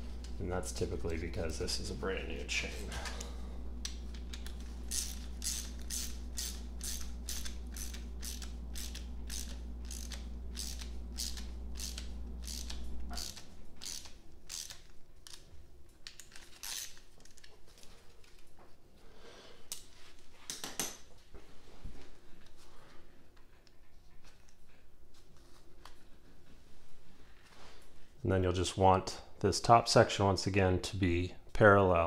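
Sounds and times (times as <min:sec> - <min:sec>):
low background hum: 0:00.0 - 0:32.0
ratchet wrench clicking: 0:04.4 - 0:15.4, 0:16.6 - 0:17.0.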